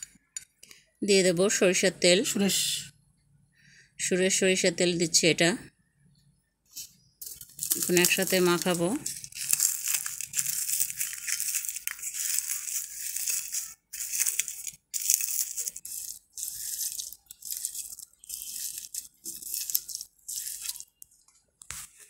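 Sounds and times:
dried chillies crackling and crunching: 0:06.7 - 0:21.2.

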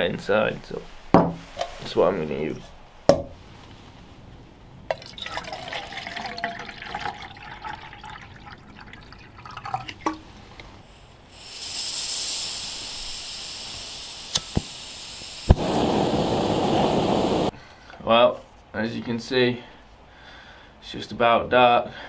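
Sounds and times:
water pouring into metal pot: 0:04.9 - 0:10.2
gas hissing from stove: 0:11.0 - 0:17.6.

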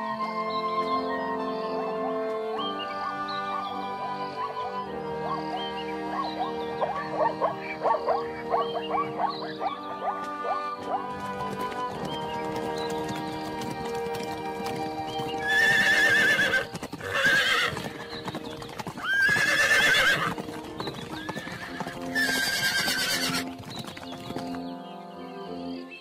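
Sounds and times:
background music: 0:00.0 - 0:26.0
horses neighing: 0:05.3 - 0:23.6.

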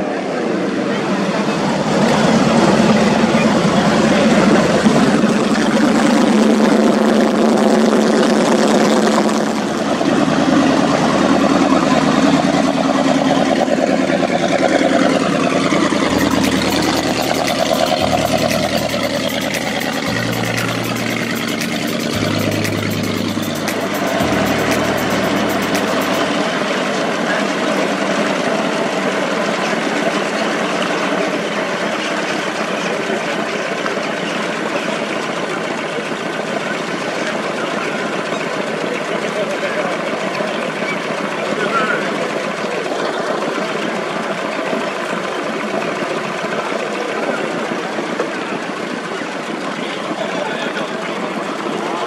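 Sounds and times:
water rushing along hulls: 0:00.0 - 0:33.4
powerboat engines running: 0:00.0 - 0:52.0.

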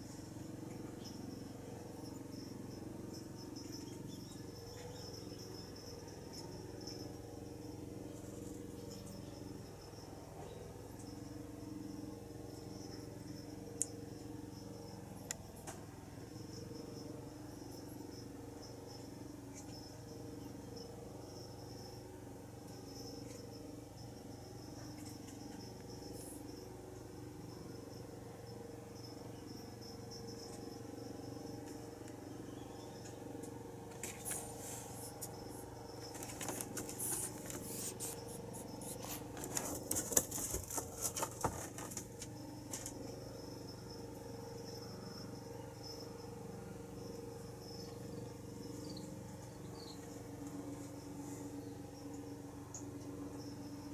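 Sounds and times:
faint insect chirping: 0:00.0 - 0:53.9
faint steady hum: 0:00.0 - 0:53.9
rustling and clicking on cardboard: 0:38.9 - 0:42.2.

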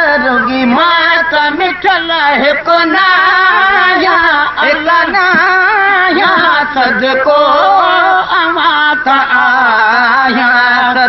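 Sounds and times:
men singing devotional song: 0:00.0 - 0:11.0.

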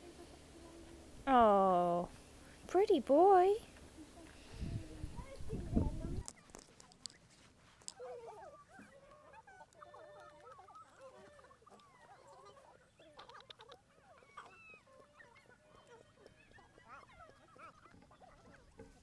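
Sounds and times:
faint bird calls chorus: 0:08.4 - 0:19.0.

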